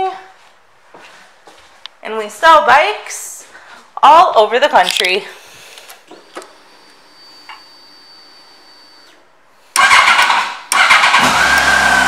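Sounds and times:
faint high whine: 5.4s - 9.2s
starter cranking: 9.8s - 12.0s.

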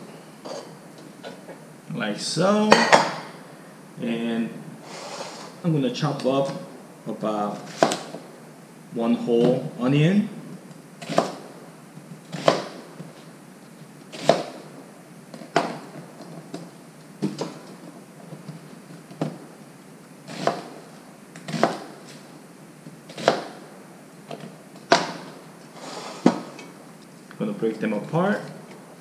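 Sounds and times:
knife chopping on cutting board: 7.7s - 8.1s, 11.0s - 11.4s, 12.4s - 12.8s, 20.3s - 20.8s, 21.5s - 21.9s, 23.1s - 23.6s.

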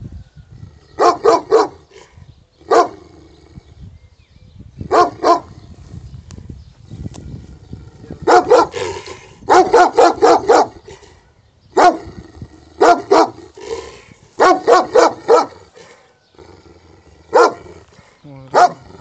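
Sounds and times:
dog barking loudly: 1.0s - 1.8s, 2.7s - 3.0s, 4.9s - 5.5s, 8.2s - 10.8s, 11.8s - 12.1s, 12.8s - 13.4s, 14.4s - 15.6s, 17.3s - 17.7s, 18.5s - 18.8s.

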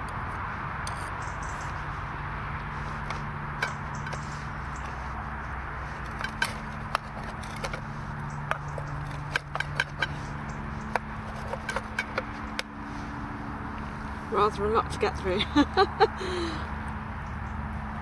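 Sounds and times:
knife and fork scraping a bowl: 5.9s - 12.5s.

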